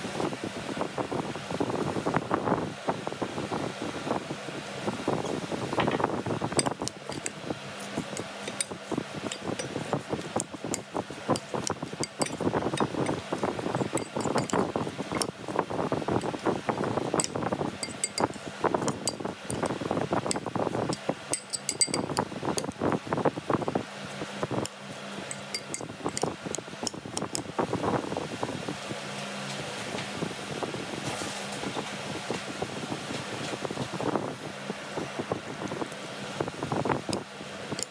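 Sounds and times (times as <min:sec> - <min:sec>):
steady low hum: 0:00.0 - 0:28.7
spoon clinking against glass: 0:06.6 - 0:07.4, 0:11.4 - 0:13.2, 0:13.8 - 0:15.3, 0:17.2 - 0:19.7, 0:20.3 - 0:22.7, 0:25.3 - 0:26.3.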